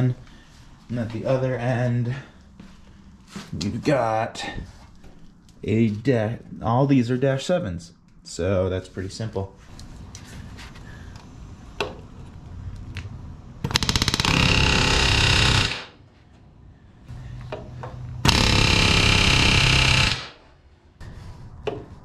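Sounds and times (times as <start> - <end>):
pneumatic rivet gun hammering: 18.2 - 20.4.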